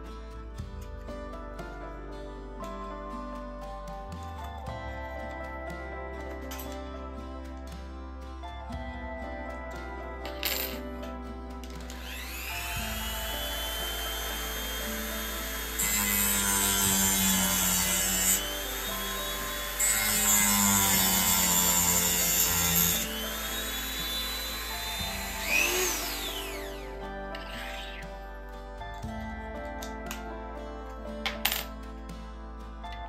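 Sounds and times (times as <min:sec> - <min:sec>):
rotary tool cutting plastic: 0:11.9 - 0:28.0.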